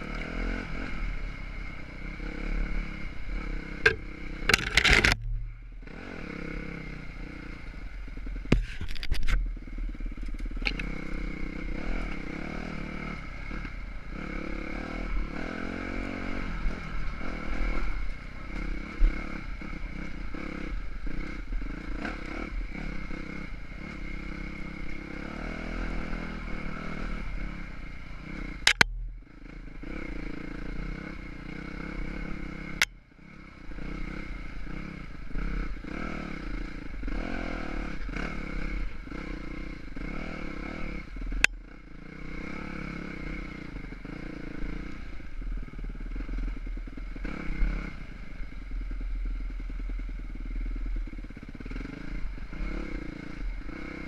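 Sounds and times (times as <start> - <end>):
dirt bike engine revving: 0.0 - 8.5, 9.8 - 54.0
sharp knocks and clatter: 3.8 - 5.4.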